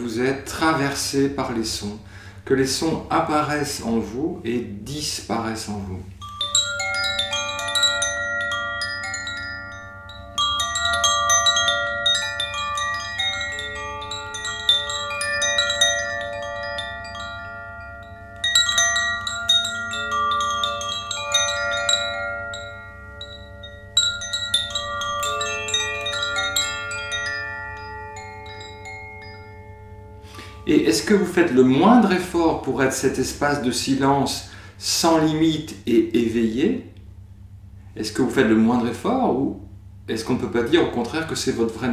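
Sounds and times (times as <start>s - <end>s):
chimes ringing: 6.1s - 32.1s.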